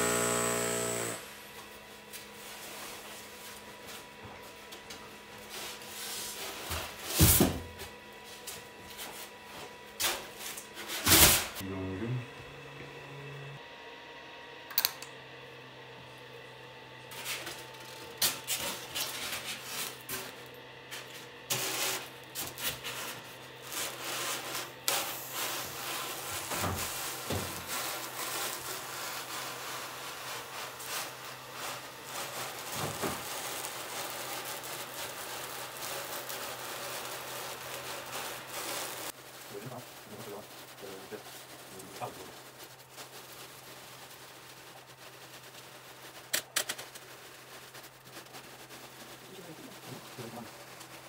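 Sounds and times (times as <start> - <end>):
foam scraping and squeaking: 17.1 - 20.3, 21.5 - 51.0.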